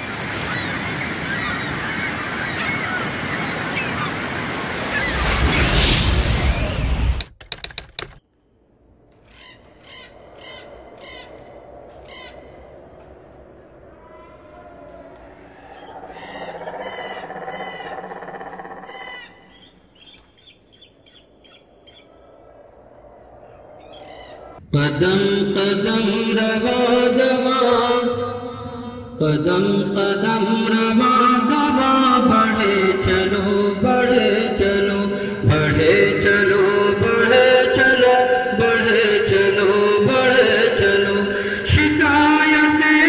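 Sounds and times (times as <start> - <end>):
harsh bird calls: 0.3 - 5.7, 9.1 - 24.6
steady rushing noise: 8.8 - 20.0.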